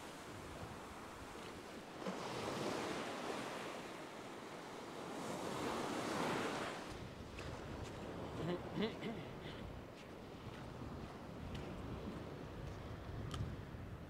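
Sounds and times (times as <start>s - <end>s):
ocean surf breaking on beach: 0.0s - 13.7s.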